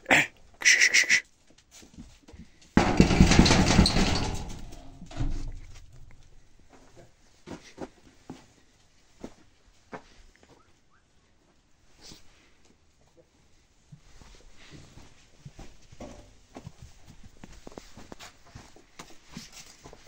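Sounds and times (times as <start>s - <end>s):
goat call pulsing: 0.0s - 1.3s
loud rattling clatter: 2.8s - 6.2s.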